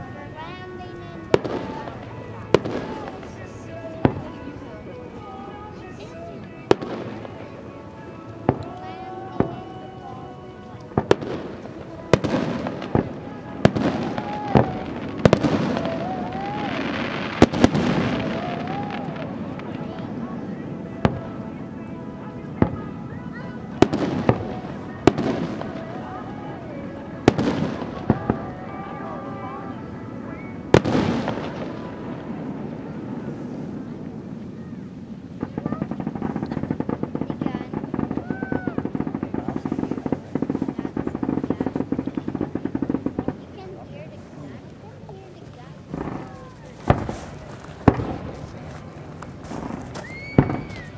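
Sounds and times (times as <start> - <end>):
crowd noise: 0.0 - 50.9
fireworks popping and banging: 0.0 - 50.9
firework shells bursting: 10.9 - 20.2, 45.8 - 50.9.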